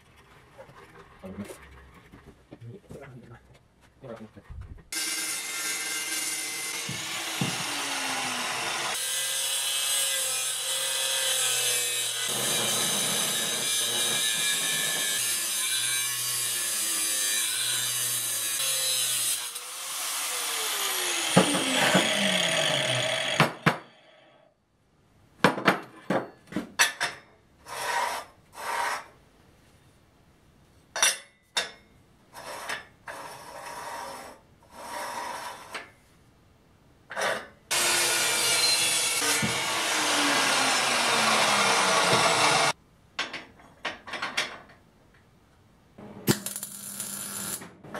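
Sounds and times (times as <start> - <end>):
chop saw cutting steel: 5.0 - 24.1, 37.7 - 42.8.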